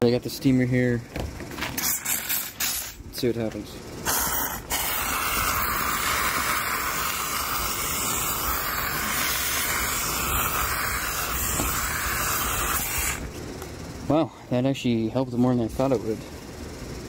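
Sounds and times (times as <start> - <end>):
steam cleaner hissing: 1.8 - 3.0, 4.0 - 13.3.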